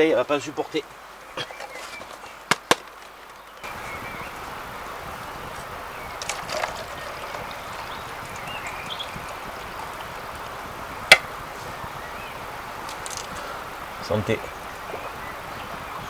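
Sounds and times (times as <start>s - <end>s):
rushing water: 2.2s - 16.0s
tea pouring into bottle: 6.2s - 10.5s.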